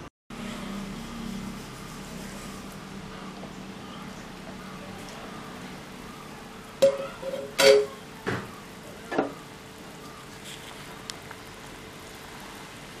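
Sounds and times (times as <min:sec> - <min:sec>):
pressure cooker bubbling hiss: 0:00.4 - 0:13.0
sharp metal clanks: 0:06.8 - 0:08.0.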